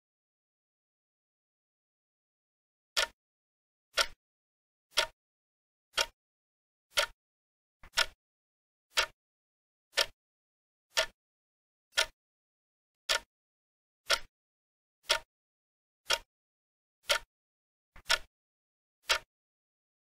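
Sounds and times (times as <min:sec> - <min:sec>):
timer ticking: 0:03.0 - 0:03.2, 0:04.0 - 0:04.2, 0:04.9 - 0:05.2, 0:06.0 - 0:06.2, 0:06.9 - 0:07.2, 0:07.8 - 0:08.2, 0:08.9 - 0:09.2, 0:09.9 - 0:10.2, 0:10.9 - 0:11.2, 0:12.0 - 0:12.2, 0:13.1 - 0:13.3, 0:14.1 - 0:14.3, 0:15.0 - 0:15.3, 0:16.1 - 0:16.3, 0:17.0 - 0:17.3, 0:18.0 - 0:18.3, 0:19.0 - 0:19.3.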